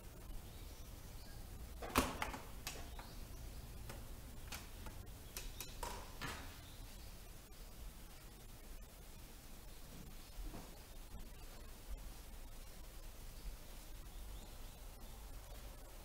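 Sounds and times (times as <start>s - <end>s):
faint low hum: 0.0s - 16.0s
light clicks and knocks: 1.8s - 6.6s.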